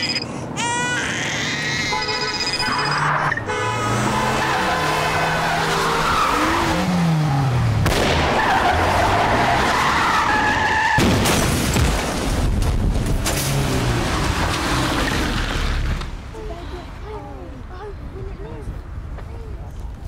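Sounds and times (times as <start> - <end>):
car engines revving: 2.4 - 10.8, 13.2 - 16.3.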